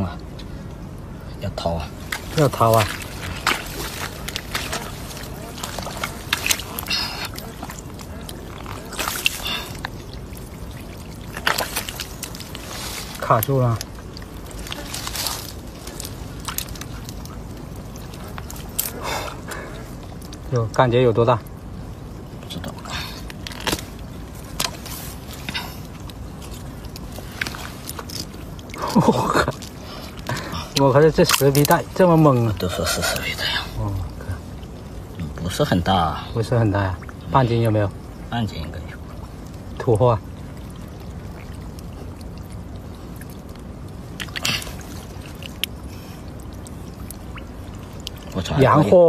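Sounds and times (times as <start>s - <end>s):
background hiss: 0.0s - 49.0s
hand sloshing in muddy water: 1.9s - 20.4s
water splash: 1.9s - 20.4s, 39.0s - 49.0s.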